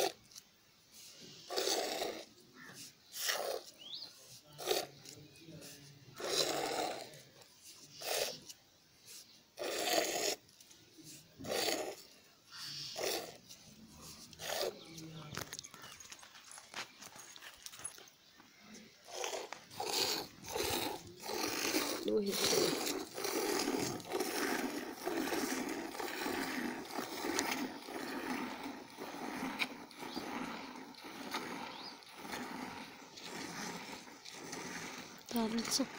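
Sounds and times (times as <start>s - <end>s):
milk squirting into steel pot: 18.8s - 35.9s.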